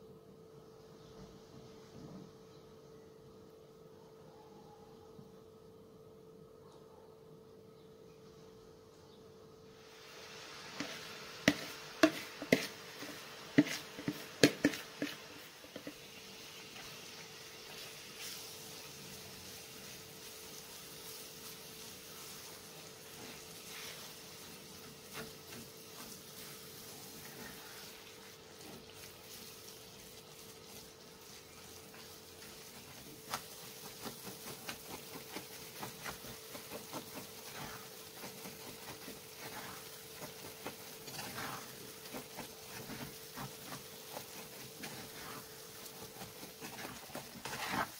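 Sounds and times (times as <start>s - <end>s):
butter sizzling in frying pan: 9.8s - 47.9s
wooden spatula scraping pan: 10.7s - 18.7s, 22.2s - 27.9s, 31.4s - 47.9s.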